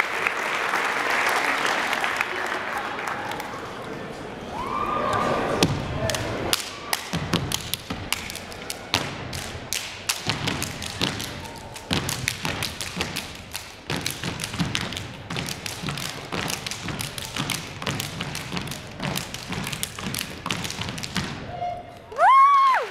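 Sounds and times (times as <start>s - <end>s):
rhythmic clapping: 6.0s - 21.4s.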